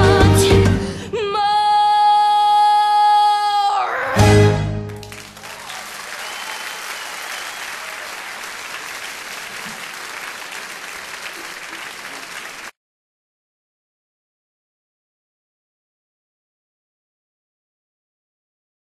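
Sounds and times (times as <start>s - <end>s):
audience applauding: 4.9s - 12.8s.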